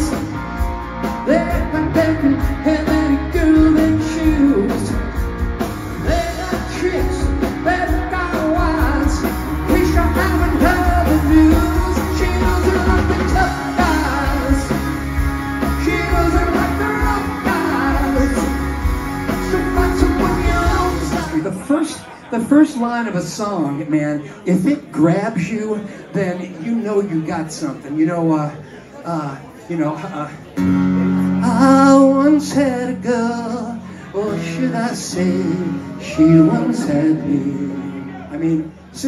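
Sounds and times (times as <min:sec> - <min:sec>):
live rock band playing: 0:00.0 - 0:27.0, 0:30.4 - 0:39.0
lead vocals singing: 0:06.0 - 0:21.7, 0:31.4 - 0:39.0.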